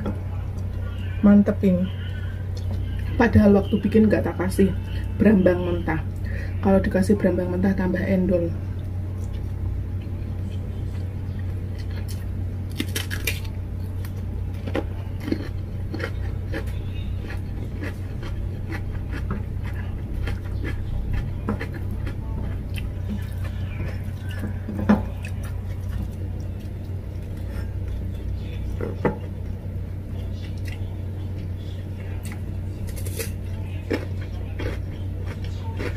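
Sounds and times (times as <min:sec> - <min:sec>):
steady low hum: 0:00.0 - 0:35.9
chewing: 0:08.7 - 0:29.4, 0:30.2 - 0:35.9
crunchy cucumber bite: 0:11.8 - 0:19.3.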